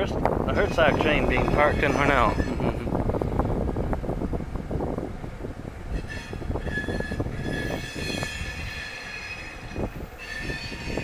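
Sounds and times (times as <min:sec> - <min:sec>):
low train rumble: 0:00.0 - 0:11.0
train wheels squealing: 0:05.9 - 0:11.0.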